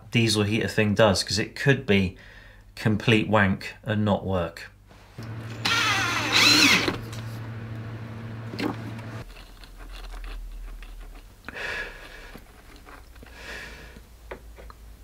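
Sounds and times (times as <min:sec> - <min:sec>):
handling noises: 0:05.1 - 0:10.2
cordless drill whining: 0:05.2 - 0:09.2.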